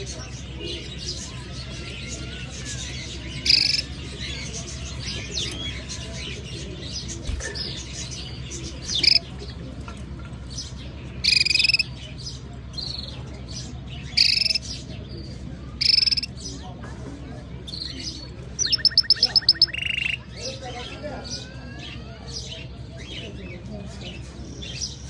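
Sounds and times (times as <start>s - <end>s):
canary bright calls: 2.0s - 4.0s, 7.3s - 9.3s, 11.2s - 11.9s, 14.0s - 14.8s, 15.8s - 16.3s, 17.7s - 20.4s
faint twittering chirps: 3.4s - 3.9s, 6.9s - 9.3s, 11.2s - 11.9s, 14.0s - 14.8s, 15.7s - 16.3s, 17.7s - 20.4s.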